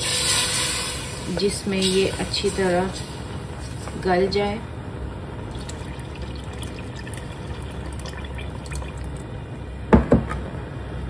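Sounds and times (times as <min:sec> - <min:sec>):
water pouring into a pot: 0:00.0 - 0:01.3, 0:05.5 - 0:09.4.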